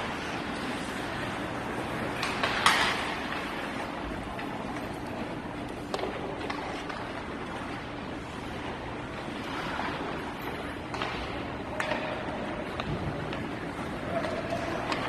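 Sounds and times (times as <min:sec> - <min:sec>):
skating and arena noise: 0:00.0 - 0:15.0
stick hitting puck: 0:02.0 - 0:05.0, 0:05.6 - 0:07.5, 0:10.8 - 0:15.0.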